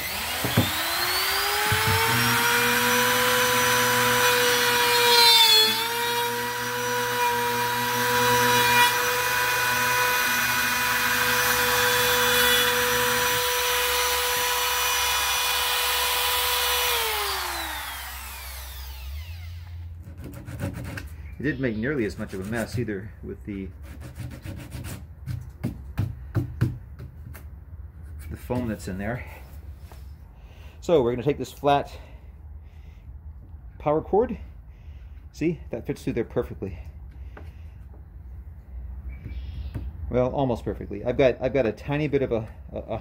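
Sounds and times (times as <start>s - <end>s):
electric router whining: 0.0s - 20.0s
router cutting plastic: 0.0s - 22.9s.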